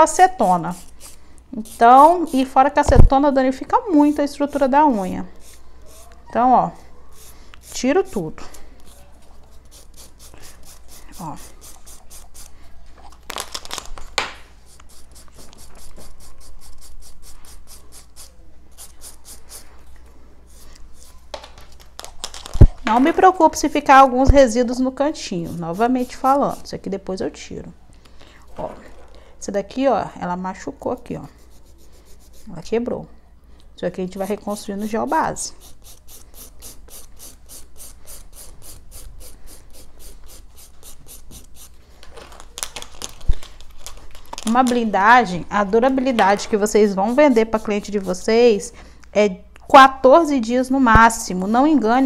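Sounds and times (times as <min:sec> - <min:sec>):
nail file rasping on fingernail: 0:00.4 - 0:02.6, 0:03.8 - 0:04.7, 0:05.4 - 0:06.2, 0:07.1 - 0:08.2, 0:08.8 - 0:12.6, 0:14.7 - 0:19.7, 0:25.4 - 0:26.7, 0:31.3 - 0:32.6, 0:34.1 - 0:41.8, 0:46.8 - 0:48.4.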